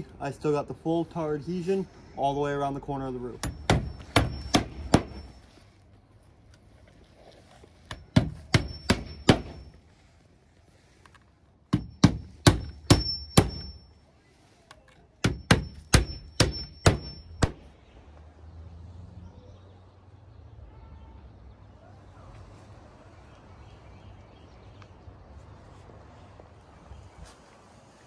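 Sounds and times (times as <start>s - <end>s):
hammer driving nails into shingles: 3.4s - 5.3s, 7.9s - 9.7s, 11.7s - 13.8s, 15.2s - 17.7s.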